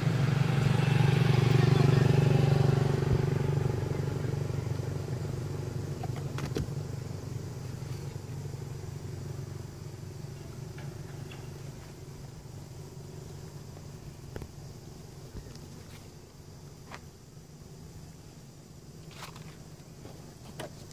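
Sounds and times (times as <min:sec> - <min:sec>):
passing vehicle engine hum: 0:00.0 - 0:14.3.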